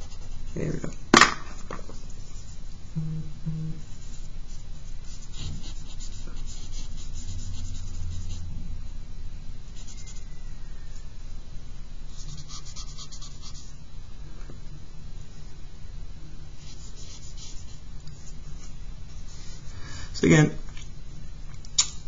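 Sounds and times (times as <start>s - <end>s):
low steady hum: 0.0s - 22.0s
charcoal scratching on paper: 3.9s - 8.4s, 16.6s - 17.8s.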